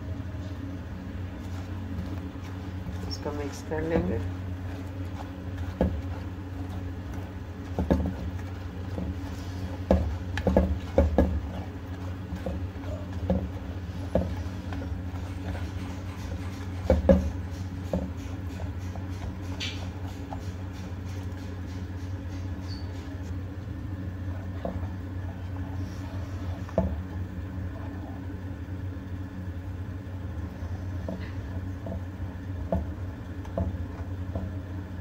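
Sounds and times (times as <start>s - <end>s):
steady low hum: 0.0s - 35.0s
spatula scraping clay pot: 1.1s - 23.4s.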